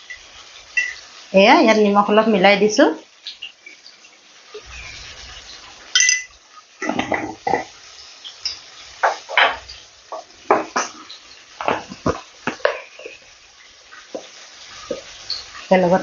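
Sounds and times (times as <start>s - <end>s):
metal utensils clinking: 0.8s - 1.0s, 5.9s - 7.7s.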